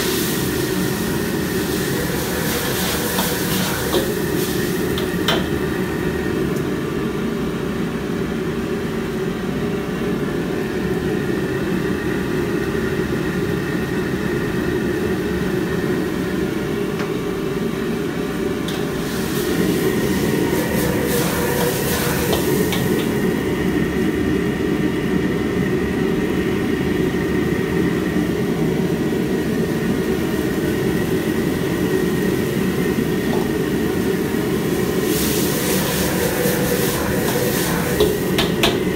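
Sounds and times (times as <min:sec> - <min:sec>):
gas burner roaring: 0:00.0 - 0:38.9
ladle scraping a wok: 0:01.8 - 0:04.6.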